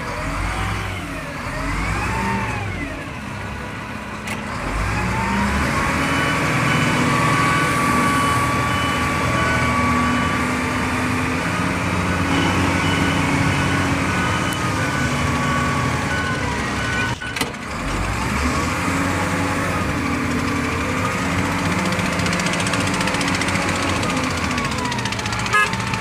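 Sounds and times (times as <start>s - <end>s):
wheel loader diesel engine: 0.0s - 26.0s
steady shifting tones: 4.6s - 26.0s.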